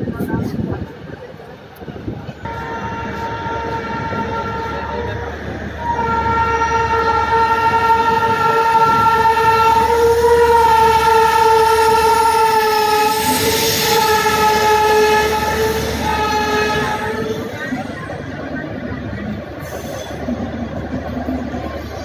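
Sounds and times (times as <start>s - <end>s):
train rumbling on tracks: 0.0s - 22.0s
train horn blast: 2.4s - 17.8s.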